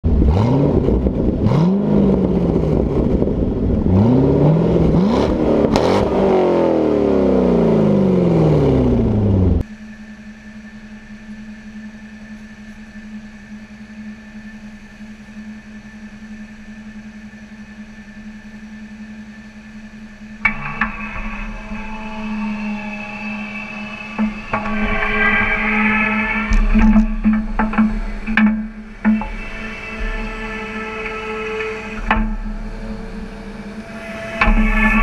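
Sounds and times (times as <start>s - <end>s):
car engine revving: 0.0s - 9.7s, 20.2s - 35.0s
excavator engine hum with whine: 0.0s - 35.0s.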